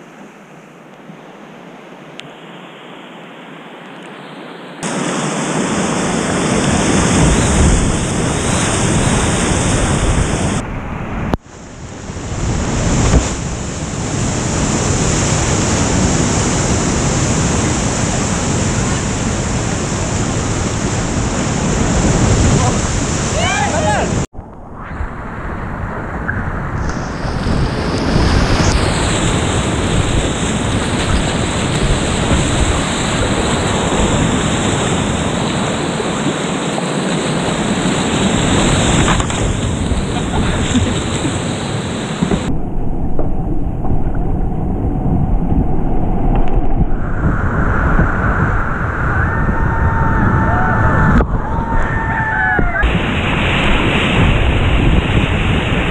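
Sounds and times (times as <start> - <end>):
whitewater rapids rushing: 4.8 - 10.6, 12.4 - 24.3, 26.9 - 42.5.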